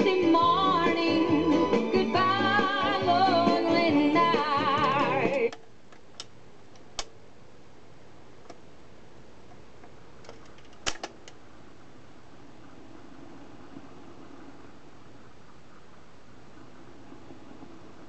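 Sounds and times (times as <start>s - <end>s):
music from record player: 0.0s - 5.6s
faint steady hum: 0.0s - 18.0s.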